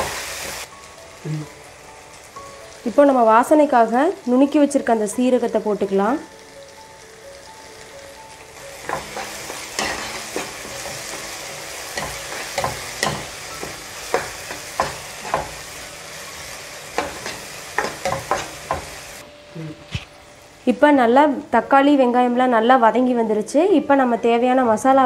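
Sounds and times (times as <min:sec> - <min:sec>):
onion and tomato sizzling in oil: 0:00.0 - 0:24.9
spatula knocking and scraping pan: 0:08.8 - 0:11.3, 0:11.9 - 0:15.6, 0:17.0 - 0:19.0.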